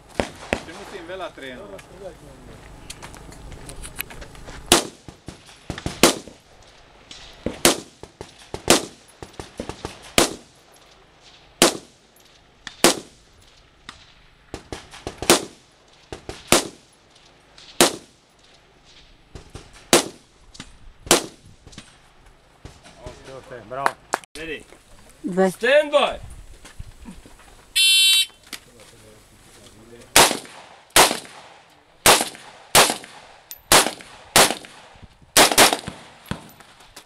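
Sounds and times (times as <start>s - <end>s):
rifle shots: 0.1s - 0.9s, 4.7s - 6.4s, 7.4s - 10.6s, 11.6s - 12.0s, 12.8s - 13.2s, 14.5s - 16.9s, 17.7s - 18.2s, 19.4s - 20.3s, 21.1s - 21.4s, 30.1s - 36.8s
fainter gunshot cracks: 30.2s - 36.5s.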